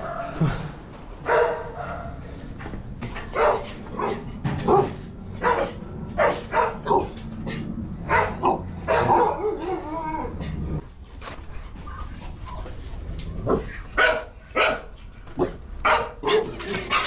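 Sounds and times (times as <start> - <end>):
dog barking: 1.2 - 2.2, 3.3 - 7.2, 8.0 - 10.0, 13.5 - 17.0.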